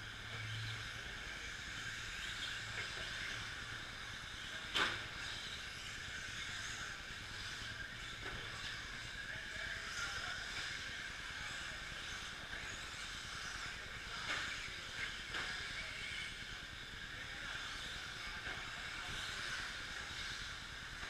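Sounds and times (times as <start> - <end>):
rc trucks racing on clay: 0.0 - 21.0.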